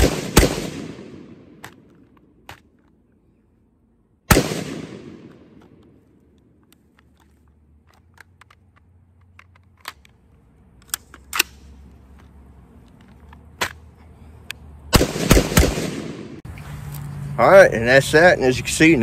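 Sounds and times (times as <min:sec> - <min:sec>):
rifle metallic clacks: 0:04.3 - 0:13.8.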